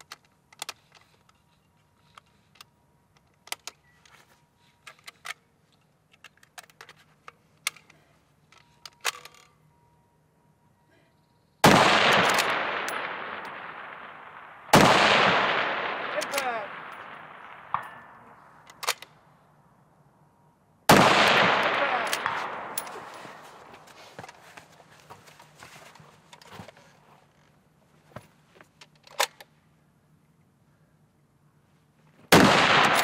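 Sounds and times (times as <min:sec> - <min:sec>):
rifle shots with echo: 0:11.6 - 0:18.5, 0:20.9 - 0:23.9, 0:32.3 - 0:33.0.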